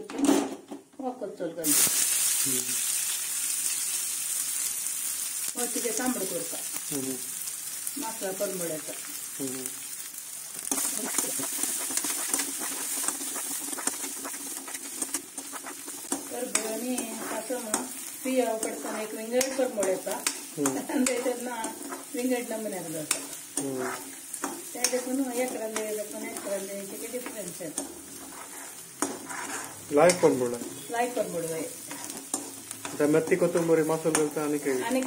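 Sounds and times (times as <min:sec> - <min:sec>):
onions sizzling in hot oil: 0:01.6 - 0:35.0
ladle scraping a metal wok: 0:10.7 - 0:20.0, 0:23.1 - 0:30.8, 0:31.8 - 0:33.7.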